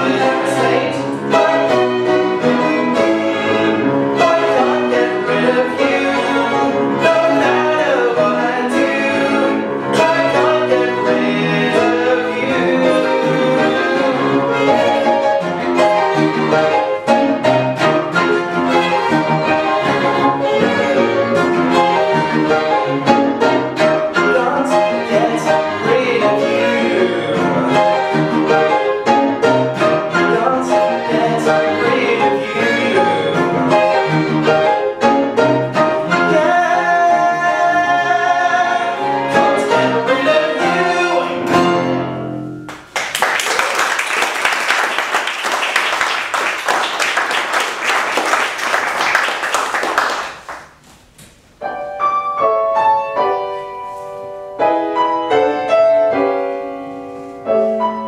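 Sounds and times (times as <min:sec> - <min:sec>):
string quartet and piano playing: 0:00.0 - 0:42.7, 0:51.6 - 0:58.0
audience applause: 0:42.7 - 0:50.8.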